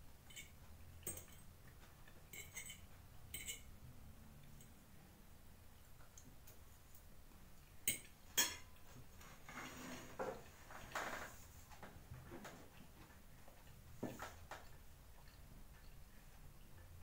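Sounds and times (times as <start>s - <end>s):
fork clinking on plate: 2.3s - 3.7s.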